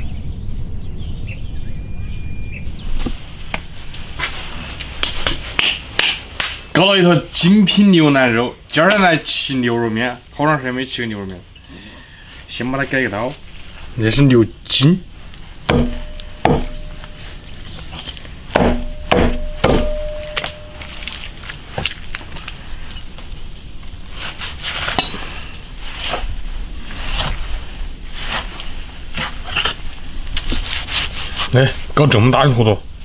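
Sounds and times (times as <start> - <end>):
cleaver chopping on wooden block: 15.7 - 17.2, 18.5 - 20.6.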